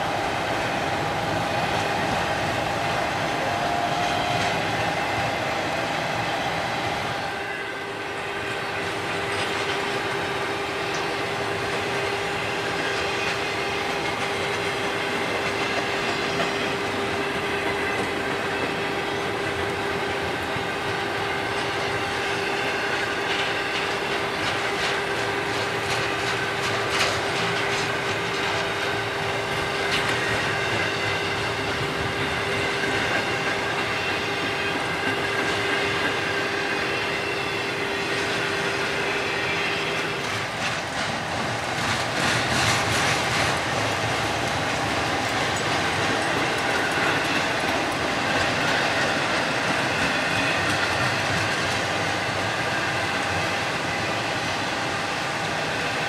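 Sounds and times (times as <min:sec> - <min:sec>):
freight train wheels rumbling on rails: 0:00.0 - 0:56.0.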